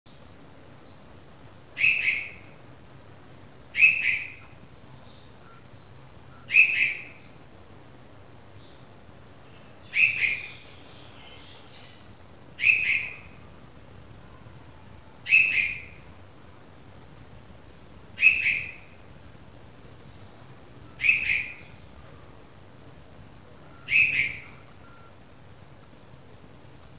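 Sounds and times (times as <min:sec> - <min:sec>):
bird fledgling calling: 0:01.8 - 0:02.6, 0:03.7 - 0:05.7, 0:06.4 - 0:07.4, 0:09.5 - 0:13.6, 0:15.2 - 0:16.1, 0:18.2 - 0:19.0, 0:20.8 - 0:22.2, 0:23.7 - 0:24.8.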